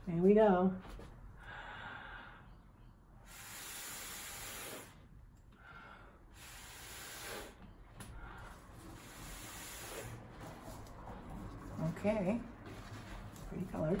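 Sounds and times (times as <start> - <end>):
breath blown through a straw: 3.2 - 5.1, 6.3 - 10.3.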